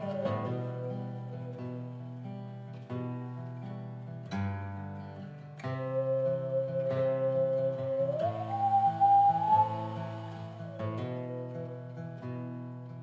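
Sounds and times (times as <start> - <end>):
held sliding high note: 6.0 - 11.8.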